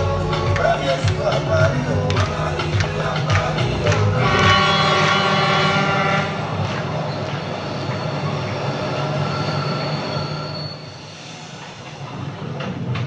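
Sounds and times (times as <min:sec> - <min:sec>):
train low rumble: 0:00.0 - 0:13.0
train horn blast: 0:04.2 - 0:06.6
thin high whistle: 0:09.0 - 0:11.6.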